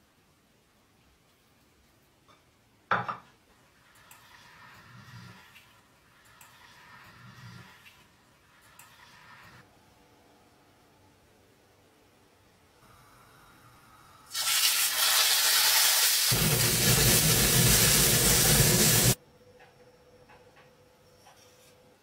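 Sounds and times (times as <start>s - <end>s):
meat sizzling in a frying pan: 14.3s - 19.2s.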